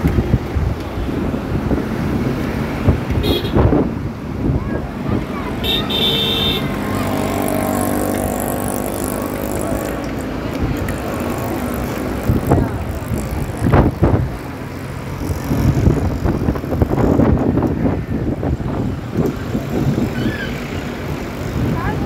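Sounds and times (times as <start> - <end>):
wind rushing over microphone: 0.0 - 5.7, 6.6 - 22.0
bicycle rattling over road: 6.7 - 22.0.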